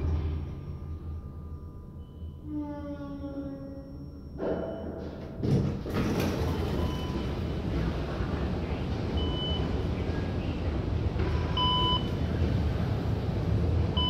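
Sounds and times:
station din with low rumble: 0.0s - 14.0s
elevator doors sliding open: 4.3s - 14.0s.

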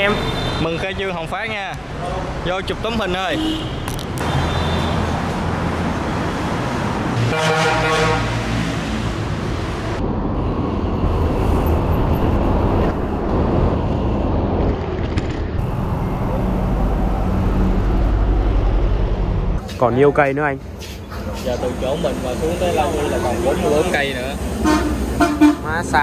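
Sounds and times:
road traffic noise: 0.0s - 26.0s
wind and road rumble: 0.9s - 26.0s
vehicle horn: 3.3s - 5.0s, 7.2s - 8.5s, 24.6s - 25.7s.

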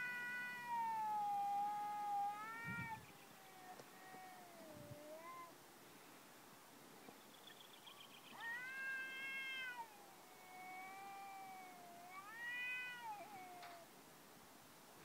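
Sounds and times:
cats caterwauling: 0.0s - 5.6s, 8.3s - 13.9s.

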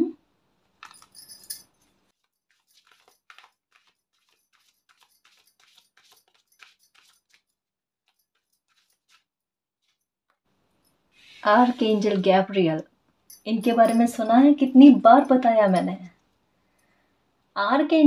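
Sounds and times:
cards being shuffled: 2.2s - 7.5s, 8.1s - 10.0s.

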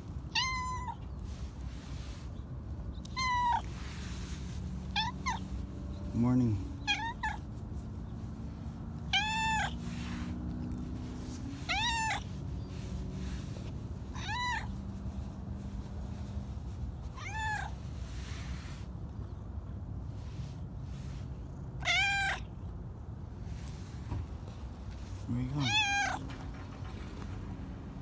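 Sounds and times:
cat meowing: 0.3s - 1.2s, 3.0s - 3.8s, 4.9s - 5.4s, 6.8s - 7.5s, 9.0s - 10.2s, 11.4s - 12.3s, 14.1s - 14.8s, 17.1s - 17.8s, 21.8s - 22.5s, 25.6s - 26.3s.

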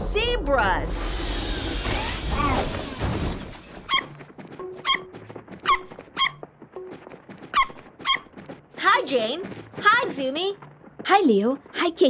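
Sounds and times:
whoosh with falling whistle: 1.0s - 3.6s
short high squeaks: 1.2s - 4.2s, 4.8s - 6.4s, 7.5s - 8.3s.

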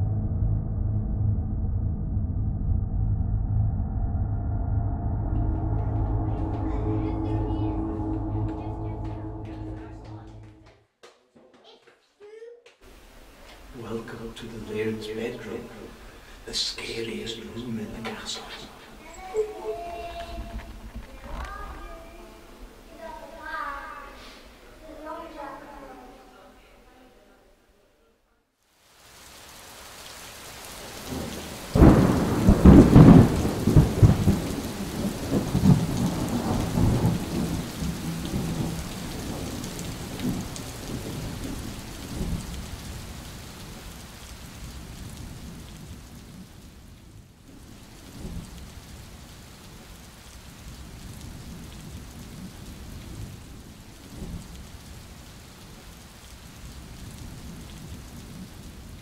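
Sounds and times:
thunder rumbling: 0.0s - 10.6s, 19.7s - 23.6s, 30.6s - 59.0s
steady rain hiss: 12.8s - 59.0s.

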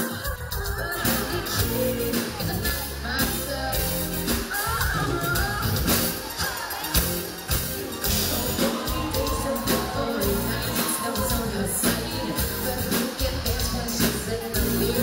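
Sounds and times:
electric bass: 0.0s - 6.4s, 7.0s - 15.0s
drums: 0.0s - 15.0s
woman singing lead: 0.0s - 15.0s.

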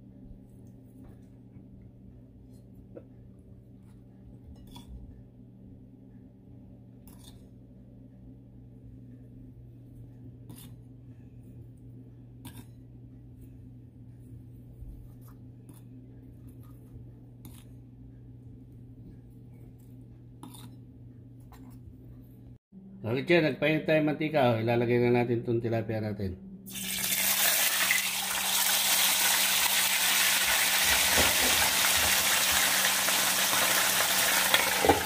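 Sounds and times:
steady low hum: 0.0s - 26.7s.

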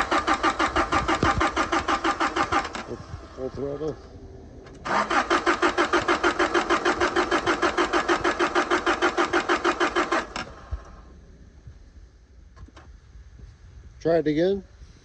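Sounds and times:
starter cranking engine: 0.0s - 3.9s, 4.7s - 11.0s.

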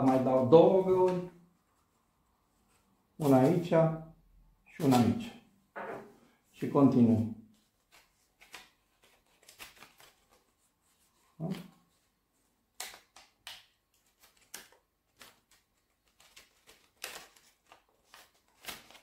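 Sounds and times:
paper rustling and crackling: 7.6s - 19.0s.

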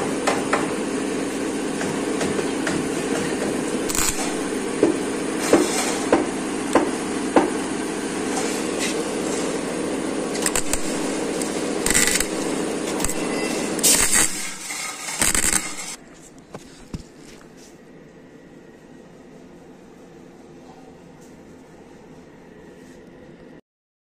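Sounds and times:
electrical hum: 0.0s - 23.6s
stick welder crackling: 2.8s - 17.0s.

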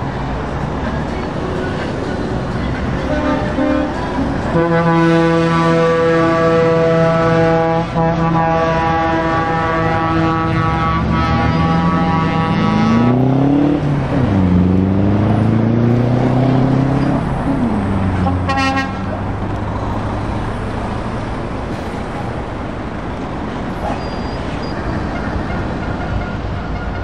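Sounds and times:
road noise of passing trucks: 0.0s - 27.0s
truck air horn: 3.0s - 13.2s, 18.2s - 19.2s, 24.1s - 27.0s
truck diesel engine shifting gears: 8.8s - 25.8s.

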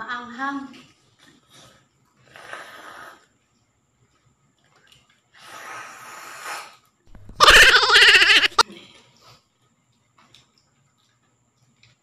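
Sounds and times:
loud wavering cry: 7.2s - 8.6s.

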